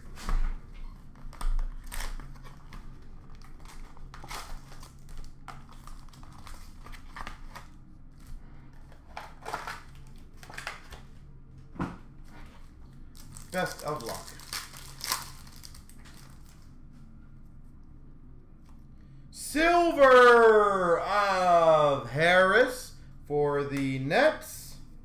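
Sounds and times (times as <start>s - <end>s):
wrapper crinkling: 1.1s - 7.8s, 13.1s - 16.8s.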